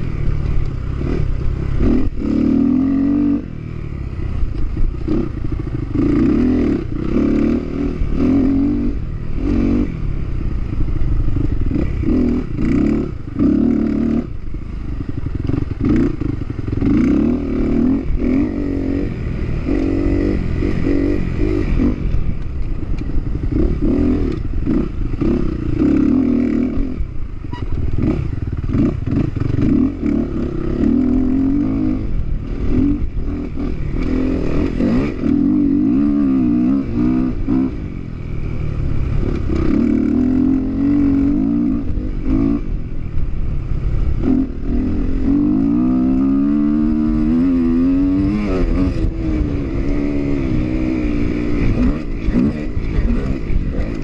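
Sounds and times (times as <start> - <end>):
dirt bike engine revving: 0.9 - 3.7, 4.9 - 42.8, 43.5 - 54.0.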